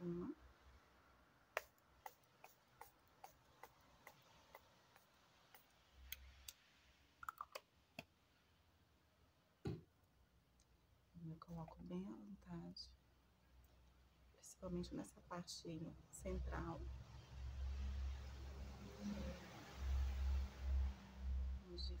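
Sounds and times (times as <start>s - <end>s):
dull thump: 9.6s - 9.9s.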